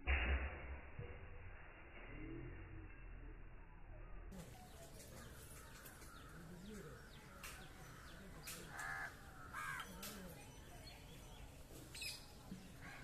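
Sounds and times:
crow cawing: 0:07.3 - 0:10.1.

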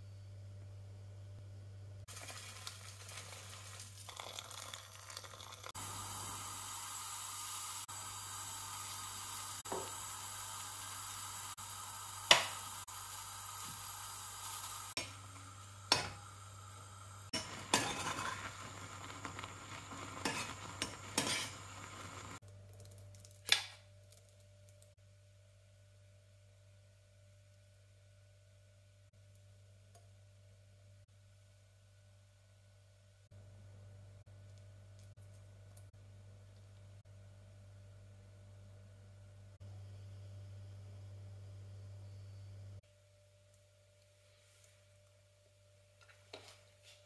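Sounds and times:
dry oats poured into pot: 0:02.1 - 0:05.7
spoon stirring and scraping pot: 0:17.4 - 0:22.4.

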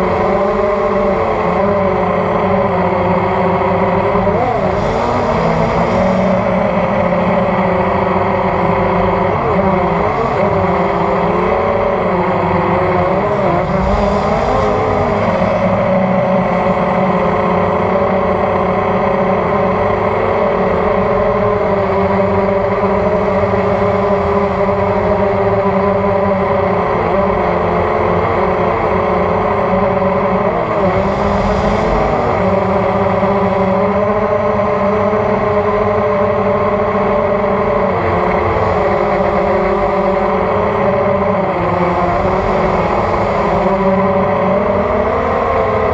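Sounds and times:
drone propellers whining: 0:00.0 - 0:45.9.

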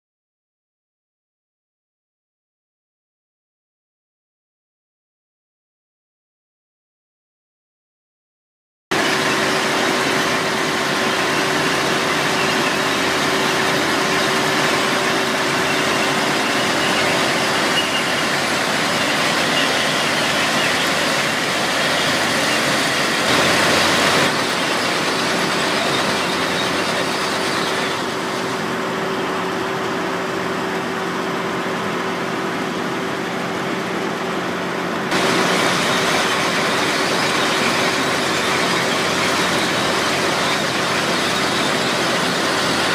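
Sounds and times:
dense machinery drone: 0:08.9 - 0:42.9.

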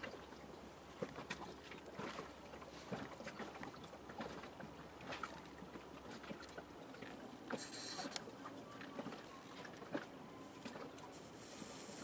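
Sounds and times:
background hiss: 0:11.2 - 0:12.0.

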